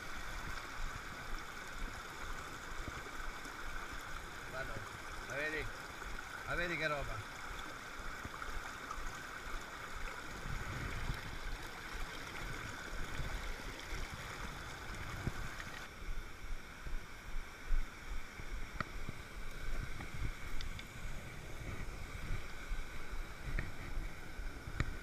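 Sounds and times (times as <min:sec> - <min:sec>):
stream rushing over rocks: 0:00.0 - 0:16.0.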